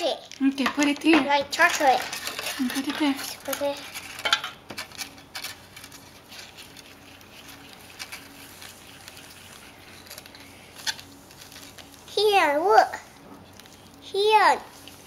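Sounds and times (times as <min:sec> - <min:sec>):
paper sachet crinkling: 0:01.6 - 0:12.2, 0:13.0 - 0:14.0.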